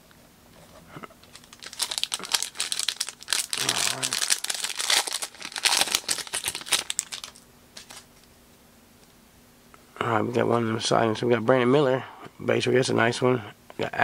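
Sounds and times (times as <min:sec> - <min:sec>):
foil wrapper crinkling and tearing: 0:01.1 - 0:08.1.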